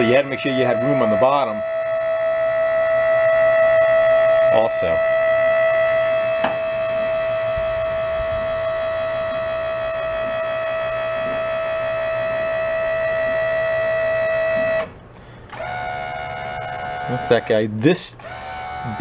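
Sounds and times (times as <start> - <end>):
hydraulic pump motor whine: 0.0 - 19.0.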